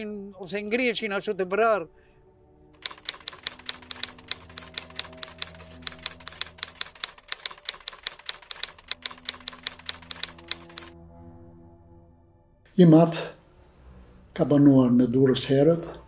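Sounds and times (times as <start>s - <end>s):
typewriter keys clacking: 2.8s - 10.9s.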